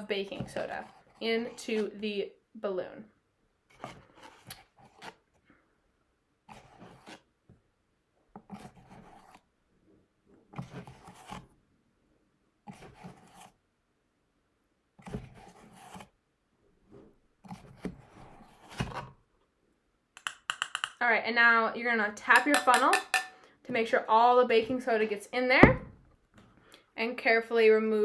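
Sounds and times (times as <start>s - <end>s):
spoon scraping powder: 6.5s - 7.3s.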